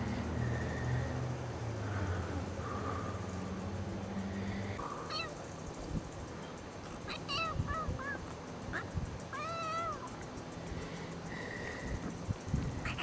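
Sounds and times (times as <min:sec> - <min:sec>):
kitten meowing: 0:05.1 - 0:05.4.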